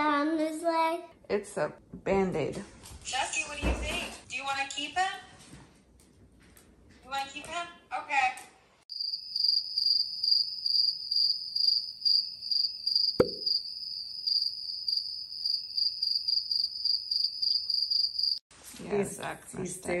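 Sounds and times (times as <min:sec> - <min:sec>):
rapid high-pitched cricket chirping: 0:08.9 - 0:18.4.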